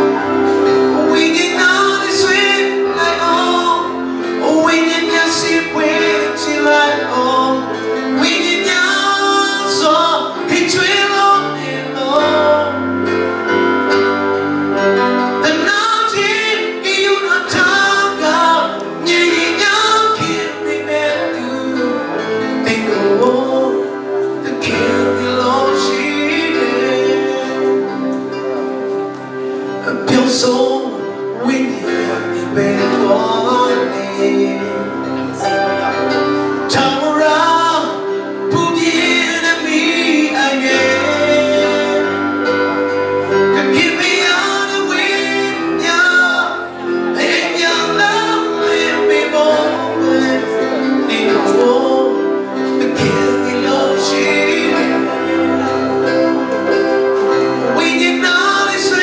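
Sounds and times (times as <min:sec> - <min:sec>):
man singing gospel: 0:00.0 - 0:13.5, 0:15.4 - 0:59.0
instrumental accompaniment: 0:00.0 - 0:59.0.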